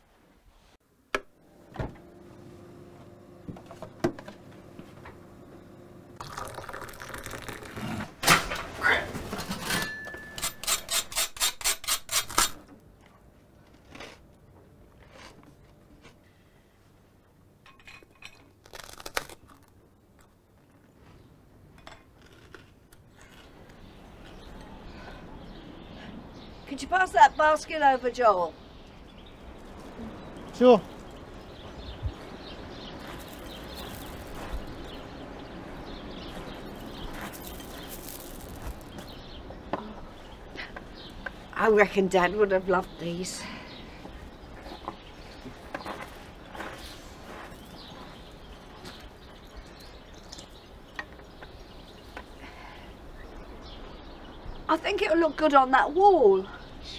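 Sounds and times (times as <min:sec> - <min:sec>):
soft crunches: 0:33.0 - 0:35.0, 0:36.3 - 0:39.2.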